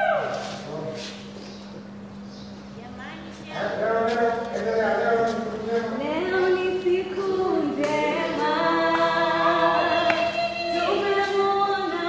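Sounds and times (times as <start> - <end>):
choir singing long notes: 8.1 - 11.1.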